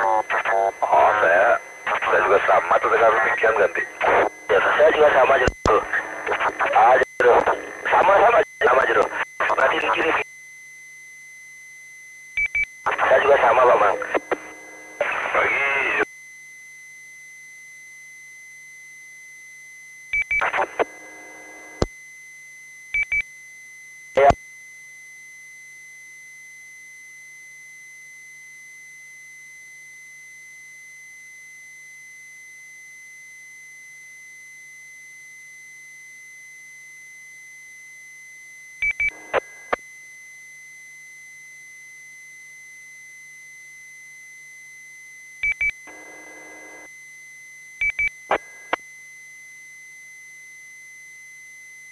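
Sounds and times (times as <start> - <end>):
burst of steady radio tones: 0.0 - 10.2, 12.9 - 16.0, 20.4 - 21.8, 24.2 - 24.4, 39.1 - 39.8, 45.9 - 46.9, 48.3 - 48.8
sharp radio burst: 0.0 - 10.2, 12.9 - 16.0, 20.4 - 21.0
short high radio beeps: 0.0 - 10.2, 12.4 - 16.0.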